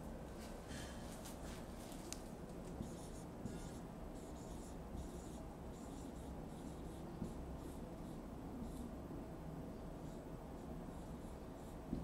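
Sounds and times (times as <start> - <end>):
marker writing on whiteboard: 2.7 - 9.0, 10.0 - 12.0.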